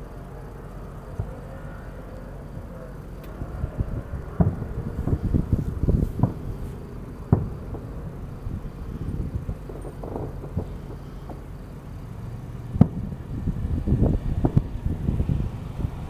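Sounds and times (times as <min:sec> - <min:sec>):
low rumble: 0:00.0 - 0:16.0
firework shells bursting: 0:03.0 - 0:14.8.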